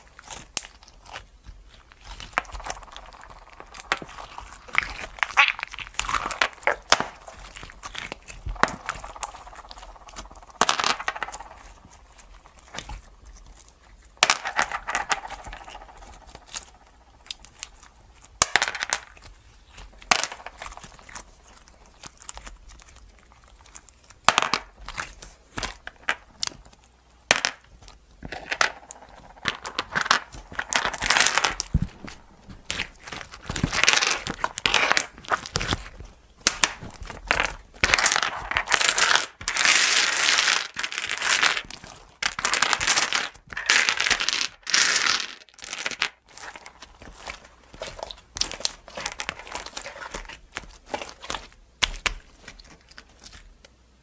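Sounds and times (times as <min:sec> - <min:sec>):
sticky slime squelching: 0:00.0 - 0:10.6, 0:11.3 - 0:14.2, 0:19.1 - 0:38.5, 0:41.0 - 0:42.2, 0:46.2 - 0:53.8
slime popping: 0:00.1 - 0:26.9, 0:28.8 - 0:40.2.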